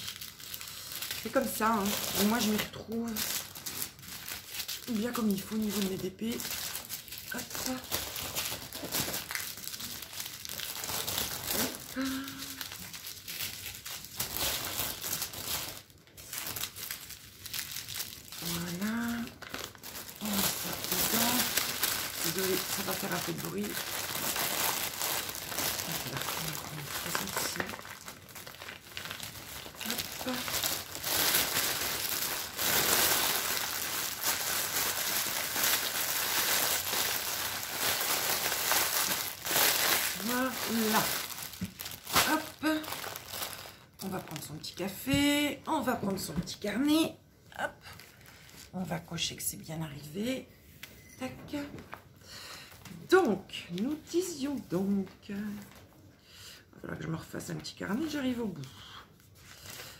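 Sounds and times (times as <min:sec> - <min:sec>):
plastic packets crinkling: 0:00.0 - 0:46.8, 0:47.8 - 0:48.9.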